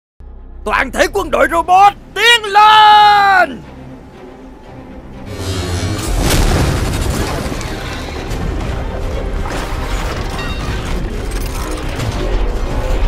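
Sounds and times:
background music: 0.2s - 13.0s
robots clanking: 9.7s - 13.0s.

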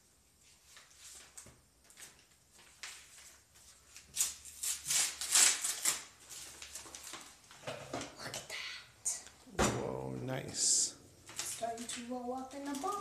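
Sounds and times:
paper pieces rustling and crackling: 0.8s - 7.6s, 11.2s - 13.0s.

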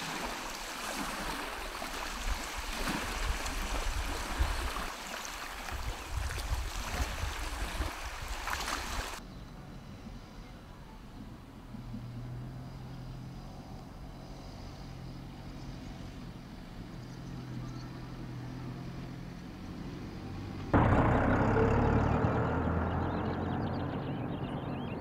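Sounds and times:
car engine hum: 11.3s - 25.0s
engine and tyre noise rushing: 11.6s - 25.0s.

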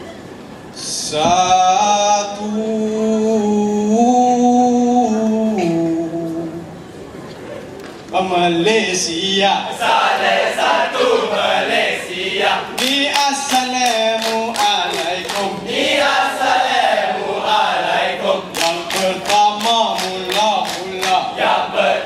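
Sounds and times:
group chanting in unison: 9.6s - 22.0s
sharp claps: 12.8s - 15.6s, 18.5s - 21.3s.

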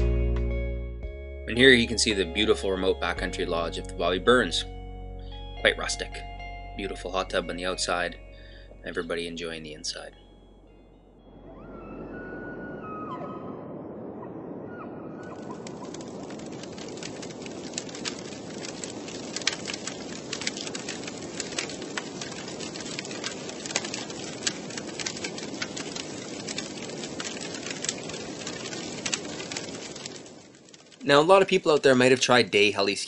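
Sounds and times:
burning wood crackling and popping: 6.8s - 10.8s, 15.2s - 33.0s
low rush of flames: 11.2s - 32.9s.

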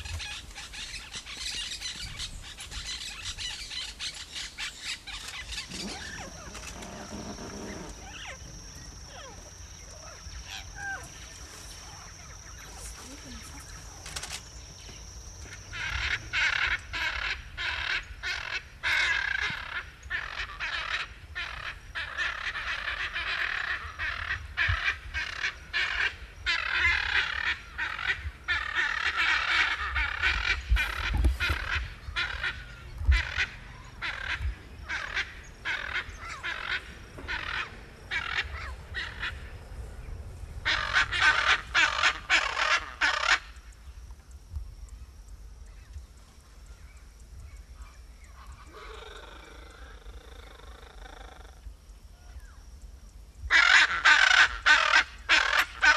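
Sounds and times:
parrots squawking: 53.5s - 55.9s.

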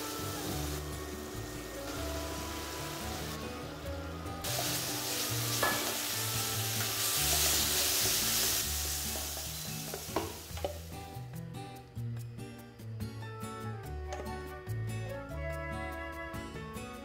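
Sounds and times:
food sizzling in hot oil: 0.0s - 3.8s, 4.4s - 11.0s.

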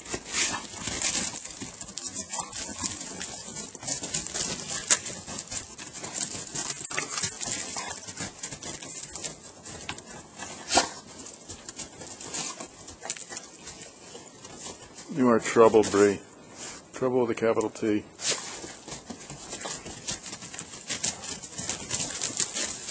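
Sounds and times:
dog paws crunching snow: 0.0s - 22.9s.

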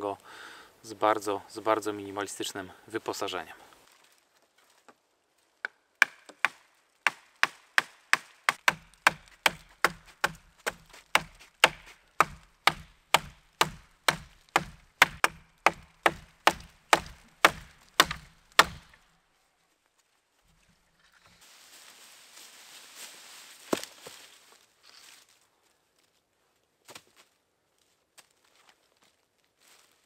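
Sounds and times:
blade chopping wood: 5.6s - 19.0s.

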